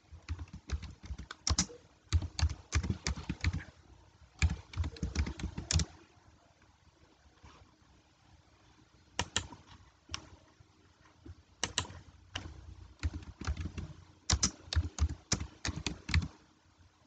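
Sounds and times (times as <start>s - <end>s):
computer keyboard keys clicking: 0.3s - 3.7s, 4.4s - 5.9s, 9.2s - 10.3s, 11.6s - 16.3s.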